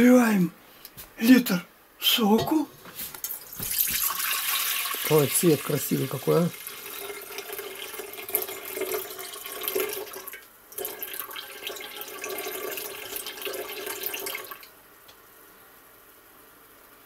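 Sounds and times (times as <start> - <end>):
juice pouring into a pot: 3.2 - 14.8.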